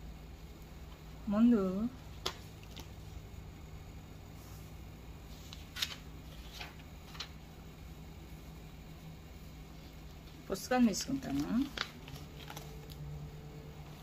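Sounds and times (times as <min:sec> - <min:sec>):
faint low hum: 0:00.0 - 0:14.0
notebook clicks and rustles: 0:02.1 - 0:03.0, 0:05.4 - 0:07.4, 0:11.0 - 0:13.1.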